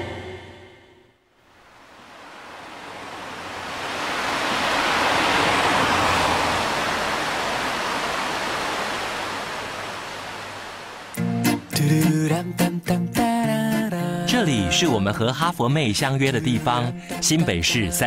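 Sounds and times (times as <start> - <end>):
rushing stream water: 1.5 - 11.7
music with singing: 11.2 - 18.0.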